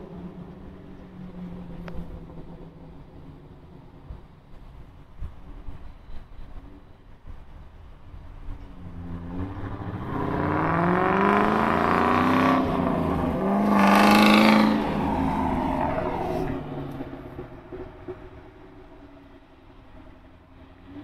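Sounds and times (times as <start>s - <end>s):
car engine accelerating hard: 8.8s - 18.9s.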